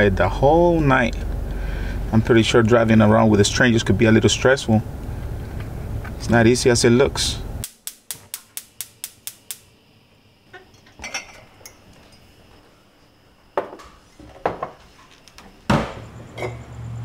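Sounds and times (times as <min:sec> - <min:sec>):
sharp clicks: 0:07.6 - 0:09.7
light clinks and knocks: 0:10.5 - 0:12.4
loud thump: 0:15.7 - 0:16.1.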